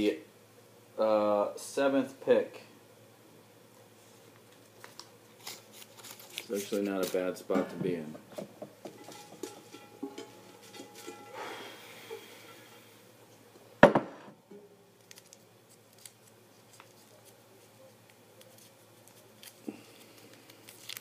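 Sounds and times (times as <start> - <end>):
paper rustling: 4.7 - 7.3, 15.0 - 17.8, 18.4 - 21.0
knock on container: 13.8 - 14.3.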